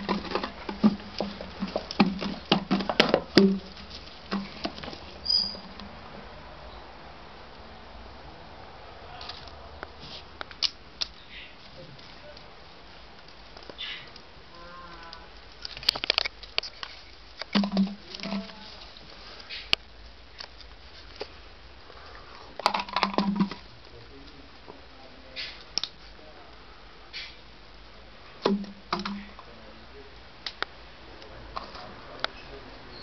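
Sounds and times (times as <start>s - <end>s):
dry grass rustling and crackling: 0.0s - 6.1s, 9.1s - 26.2s.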